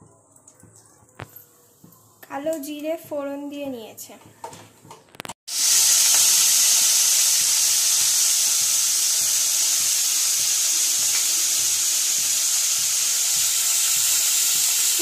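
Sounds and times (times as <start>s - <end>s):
vegetables sizzling in hot oil: 5.5s - 15.0s.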